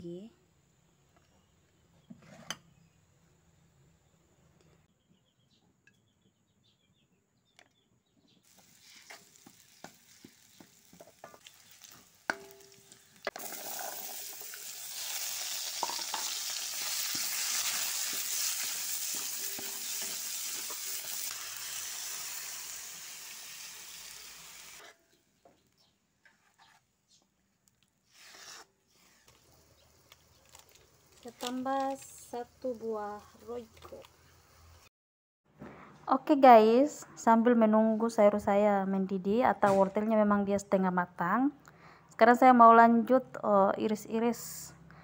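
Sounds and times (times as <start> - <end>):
carrots sizzling in oil: 8.4 - 24.8
spatula stirring in wok: 8.5 - 22.3.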